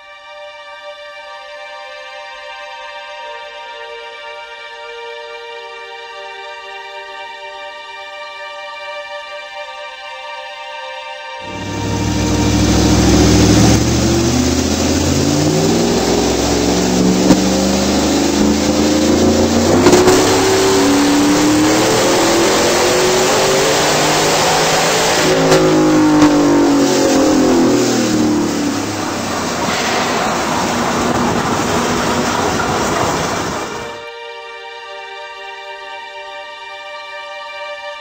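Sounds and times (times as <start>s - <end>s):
supercharged engine revving: 11.4s - 34.0s.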